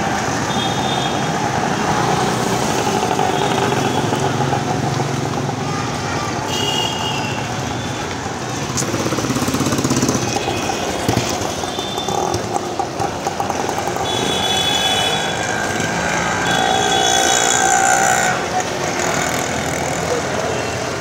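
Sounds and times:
vehicle engines running: 0:00.0 - 0:21.0
engine chugging: 0:08.5 - 0:20.4.

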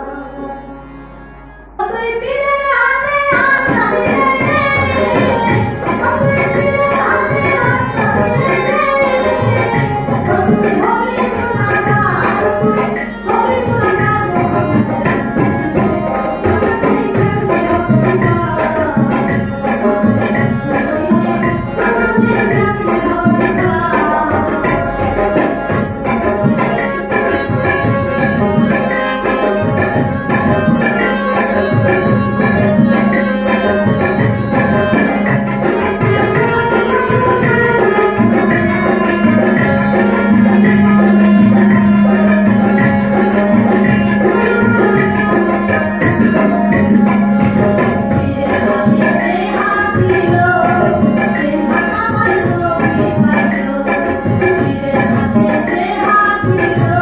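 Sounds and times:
dotara: 0:00.0 - 0:57.0
harmonium: 0:00.0 - 0:57.0
tabla fast rhythm: 0:00.0 - 0:57.0
steady held tone: 0:25.1 - 0:51.7.

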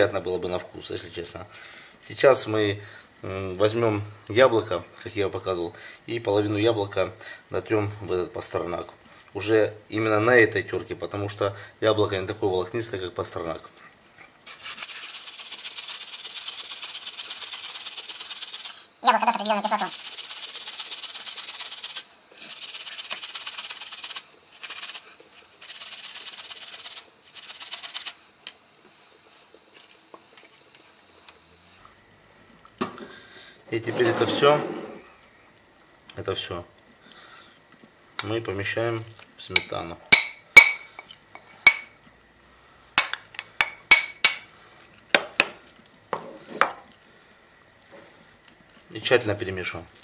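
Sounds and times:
apple grated on metal grater: 0:14.5 - 0:28.2.

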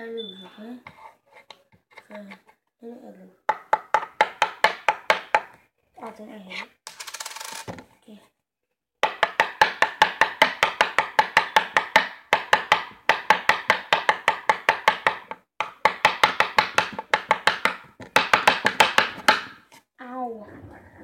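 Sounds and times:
pencil tapping on tabletop: 0:03.5 - 0:05.6, 0:09.0 - 0:19.7.

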